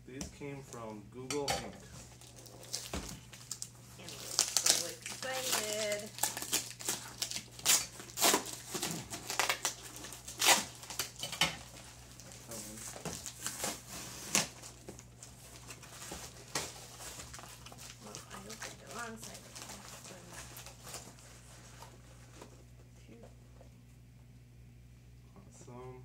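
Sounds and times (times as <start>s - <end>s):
packing paper and plastic crinkling: 1.8s - 22.9s
cardboard boxes ripping: 2.2s - 11.2s, 12.1s - 21.1s.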